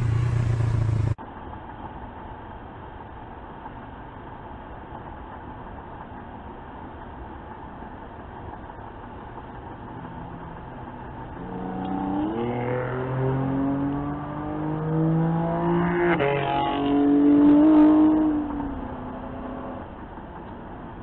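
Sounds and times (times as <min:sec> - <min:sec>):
car engine revving: 0:00.0 - 0:01.2, 0:09.4 - 0:21.0.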